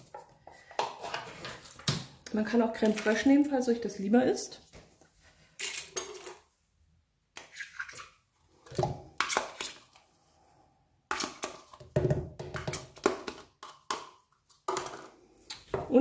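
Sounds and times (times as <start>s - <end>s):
spoon scraping yogurt tub: 0.0s - 1.9s.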